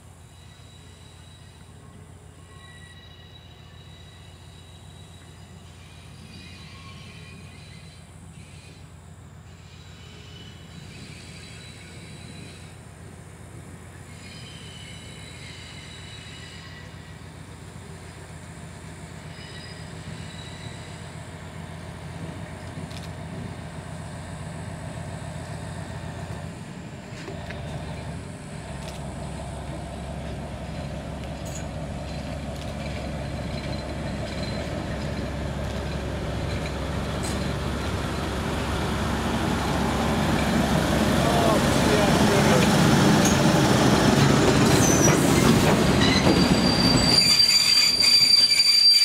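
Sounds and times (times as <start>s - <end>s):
diesel locomotive engine hum: 0.0s - 49.0s
wheels clicking on track: 27.1s - 39.1s, 39.7s - 48.9s.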